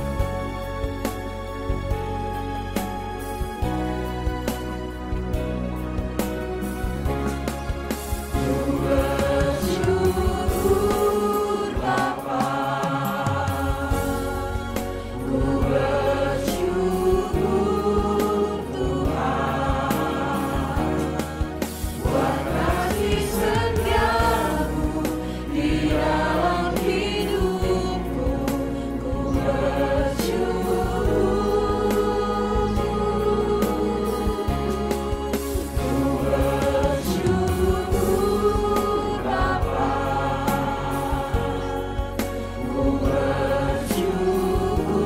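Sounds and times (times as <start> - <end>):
choir singing a hymn: 7.9 - 45.0.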